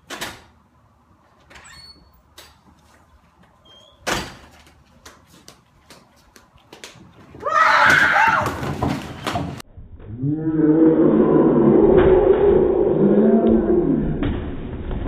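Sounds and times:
light footsteps: 0:04.4 - 0:07.6
woman screaming: 0:07.4 - 0:08.6
slowed-down deep scream: 0:09.9 - 0:14.7.

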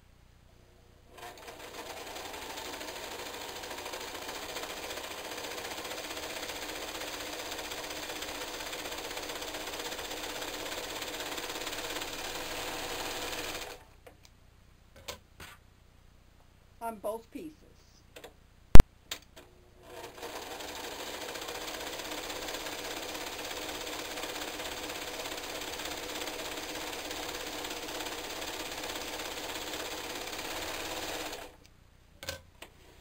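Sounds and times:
serger sewing machine running: 0:01.2 - 0:13.8, 0:19.9 - 0:31.6.

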